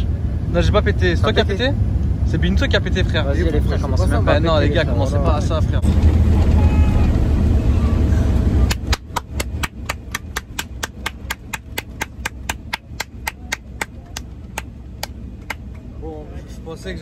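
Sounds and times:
loud low cabin rumble: 0.0 - 17.0
person clapping: 8.7 - 15.8.

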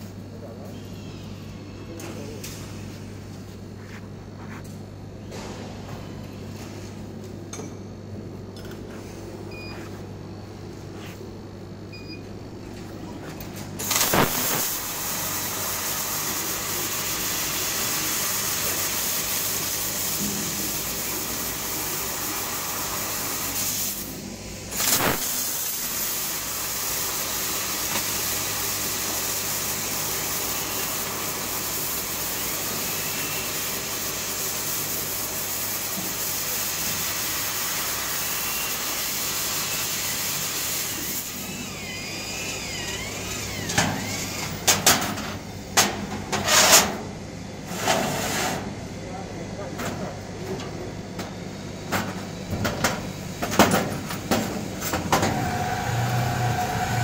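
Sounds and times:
laser cutter humming: 13.8 - 44.6.

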